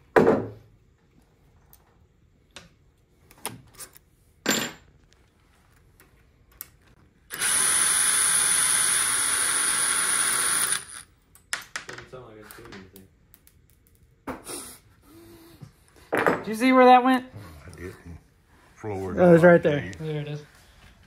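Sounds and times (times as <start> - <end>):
cordless drill whining: 7.3 - 11.1.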